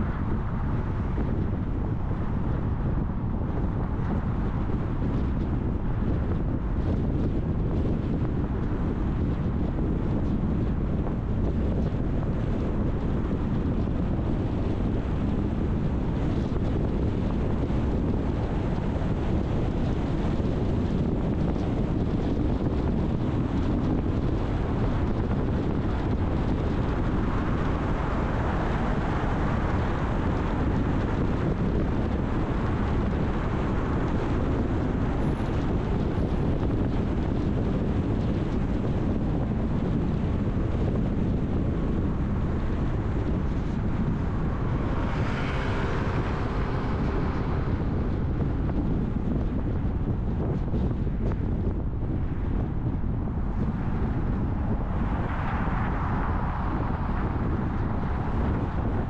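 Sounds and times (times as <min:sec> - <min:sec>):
tyre and road noise: 0:00.0 - 0:59.0
wind: 0:00.0 - 0:59.0.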